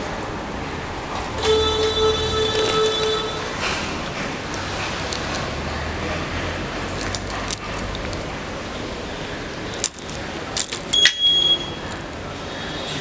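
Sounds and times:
keys jangling: 0:00.7 - 0:03.9, 0:04.5 - 0:05.6, 0:06.9 - 0:08.5, 0:09.5 - 0:11.2.

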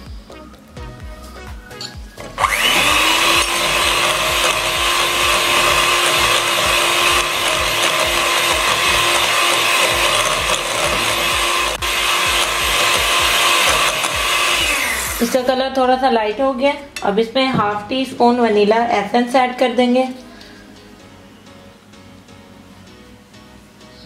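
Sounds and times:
electric hand mixer whining: 0:02.3 - 0:15.6.

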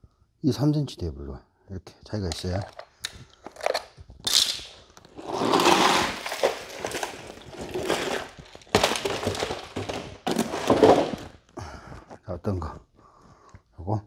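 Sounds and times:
rushing scrape: 0:05.1 - 0:08.4.

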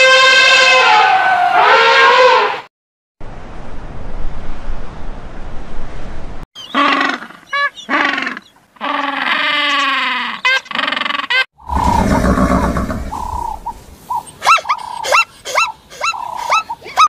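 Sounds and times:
steady rushing noise: 0:11.6 - 0:14.1.

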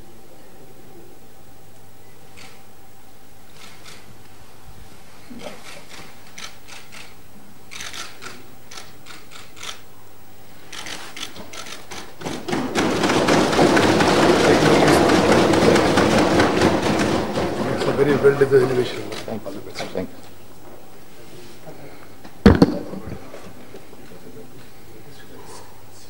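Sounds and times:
knocks: 0:11.4 - 0:19.3, 0:22.4 - 0:23.2
crowd applauding: 0:11.5 - 0:19.4.

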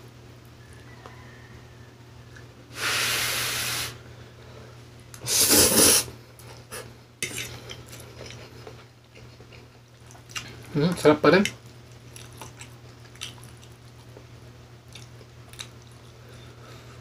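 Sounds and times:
slurping noodles: 0:05.2 - 0:06.1
soft chewing: 0:06.4 - 0:17.0.

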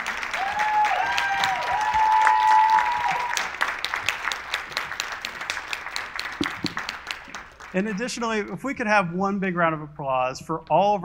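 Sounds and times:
audience applauding: 0:00.0 - 0:08.7
vocal whoops: 0:00.4 - 0:03.6.

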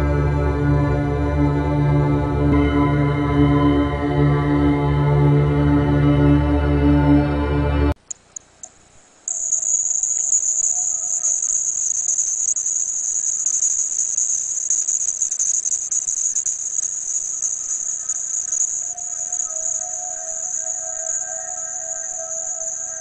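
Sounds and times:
high-pitched shrill trill: 0:09.3 - 0:23.0.

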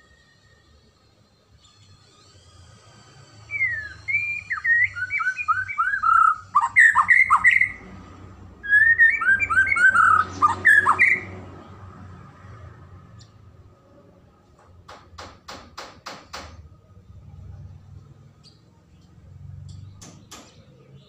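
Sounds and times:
bird singing whistled notes: 0:03.4 - 0:07.8, 0:08.6 - 0:11.4.

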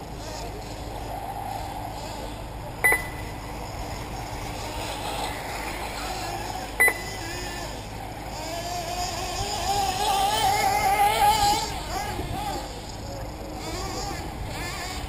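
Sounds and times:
model car motor revving: 0:00.0 - 0:15.0
model cars mechanical noise: 0:00.0 - 0:15.0
short electronic beep: 0:02.8 - 0:03.3, 0:06.8 - 0:07.1.

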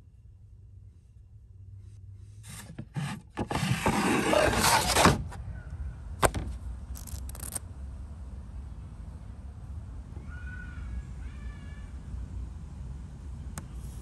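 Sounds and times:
plastic bin scraping on shelf: 0:02.4 - 0:05.4.

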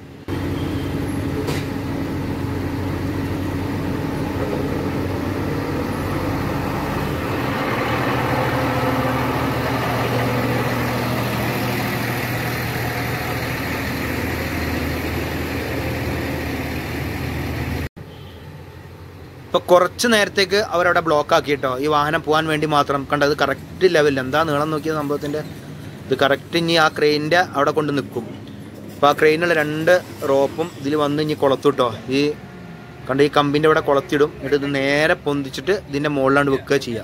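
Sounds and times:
diesel engine humming: 0:00.0 - 0:17.9.

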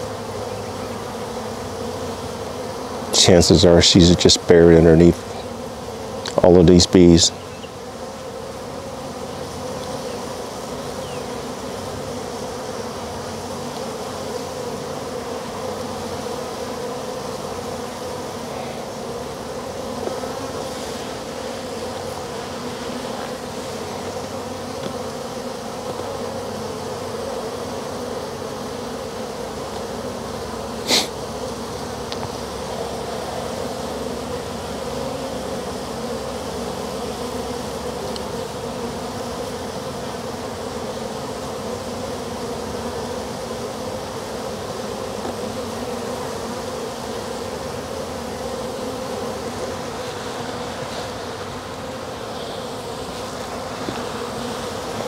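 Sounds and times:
bee swarm buzzing: 0:00.0 - 0:55.0.

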